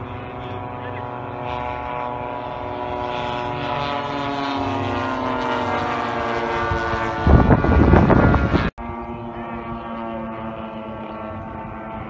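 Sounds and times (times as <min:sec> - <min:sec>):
model airplane engine drone: 0:00.0 - 0:12.0
wind rumbling on microphone: 0:00.0 - 0:12.0.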